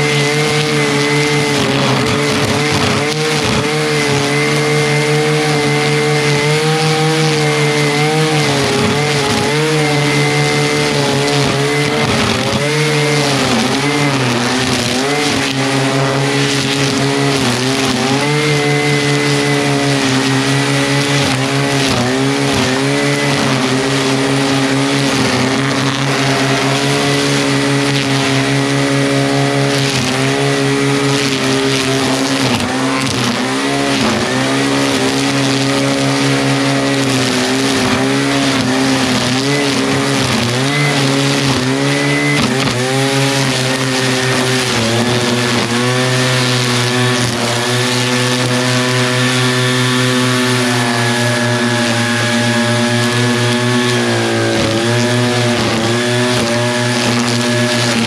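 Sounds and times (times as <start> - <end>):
string trimmer cutting grass: 0.0 - 58.0.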